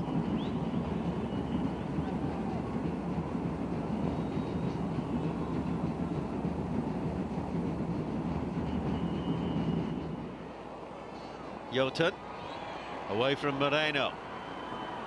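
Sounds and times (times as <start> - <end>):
stadium crowd ambience: 0.0 - 15.0.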